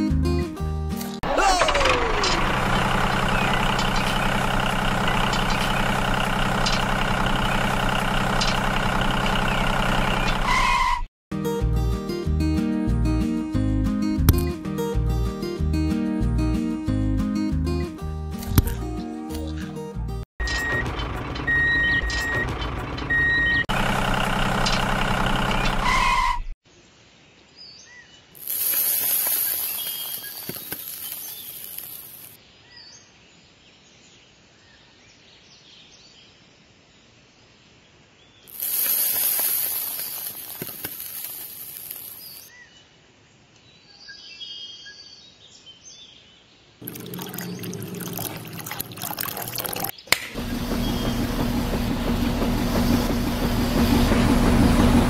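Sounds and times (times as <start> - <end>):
sand pouring into tin drum: 28.4 - 32.3, 38.5 - 42.4.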